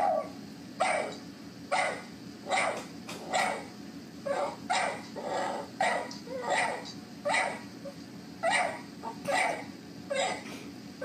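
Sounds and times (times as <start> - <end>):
dog barking from a video: 0.0 - 3.7, 4.3 - 7.6, 8.4 - 10.5.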